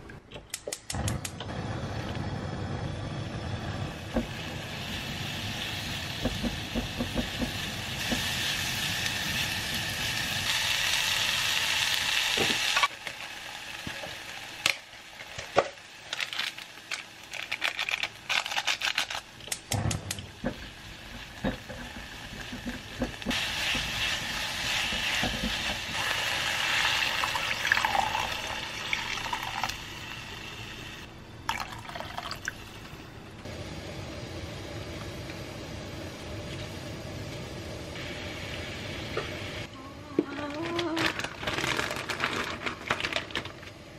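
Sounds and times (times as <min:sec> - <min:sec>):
stir-frying sizzle: 0:03.9 - 0:17.4, 0:20.2 - 0:31.0.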